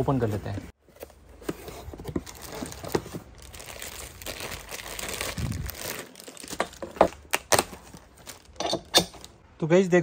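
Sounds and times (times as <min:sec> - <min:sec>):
cardboard packaging rustling: 0:00.8 - 0:08.6
plastic wrapping crinkling: 0:02.1 - 0:08.6.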